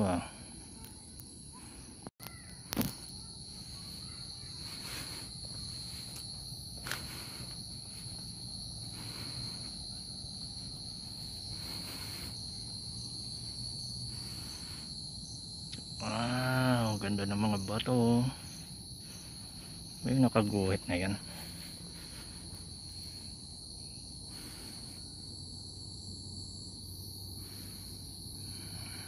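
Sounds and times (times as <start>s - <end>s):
insects chirring: 0.0s - 29.0s
footsteps on gravel: 4.5s - 9.5s.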